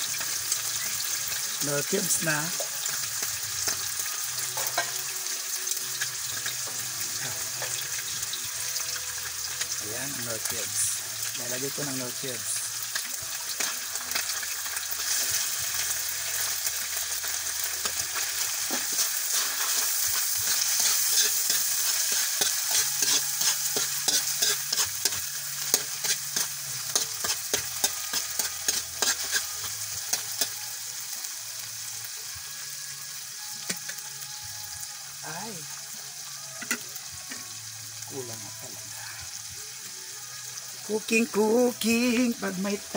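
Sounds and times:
meat and onions sizzling in a pan: 0:00.0 - 0:42.9
spatula scraping a pan: 0:17.8 - 0:30.6.

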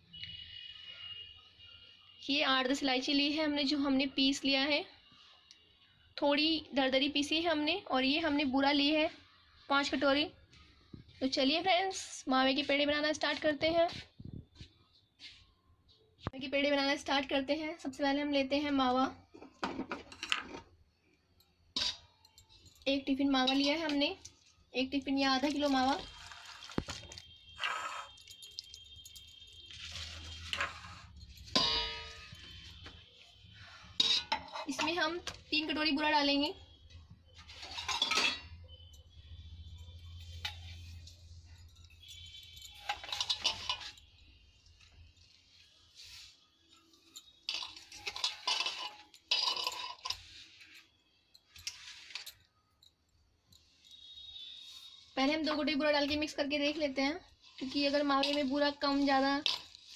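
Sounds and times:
steel bowls clinking and scraping: 0:21.7 - 0:35.8, 0:37.3 - 0:56.4, 0:57.2 - 0:59.9
steel container scraping on plate: 0:29.7 - 0:32.8, 0:42.7 - 0:44.0, 0:47.5 - 0:50.8, 0:57.5 - 0:59.9.

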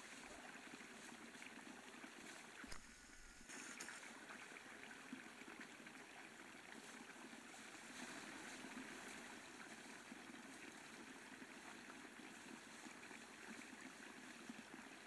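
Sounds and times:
faint stream rushing: 0:00.0 - 0:15.0.

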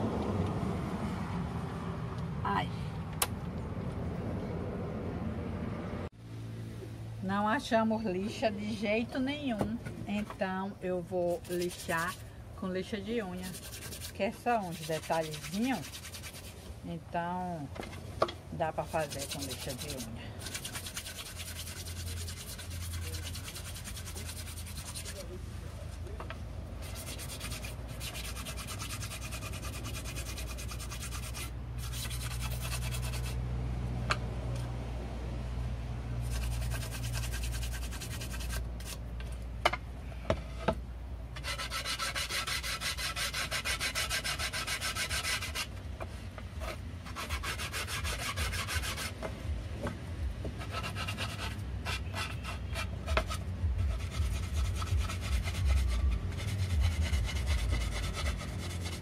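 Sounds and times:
nail file rubbing on wood: 0:11.3 - 0:12.2, 0:13.3 - 0:16.6, 0:18.8 - 0:25.3, 0:26.8 - 0:33.4, 0:36.2 - 0:39.0, 0:41.4 - 0:45.7, 0:50.6 - 0:59.0.

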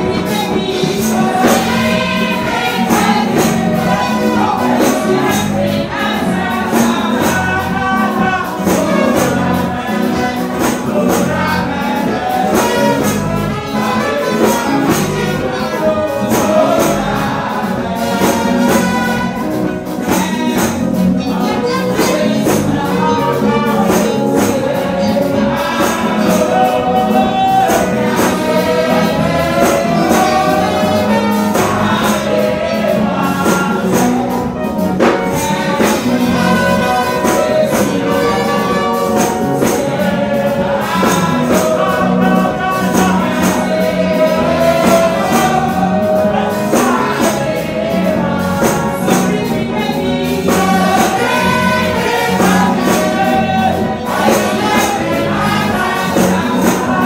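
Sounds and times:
band accompaniment with beat: 0:00.0 - 0:57.0
gospel singing through pa: 0:00.0 - 0:57.0.

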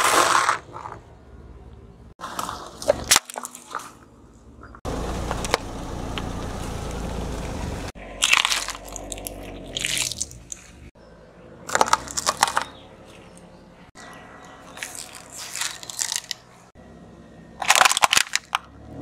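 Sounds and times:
plastic crunching under a car tyre: 0:08.2 - 0:10.9, 0:11.7 - 0:13.4, 0:14.7 - 0:16.5, 0:17.6 - 0:18.7.

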